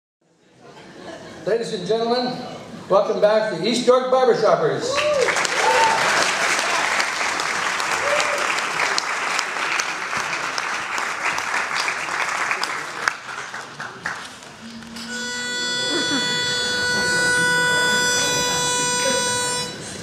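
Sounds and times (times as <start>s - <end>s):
audience applause: 4.9s - 14.6s.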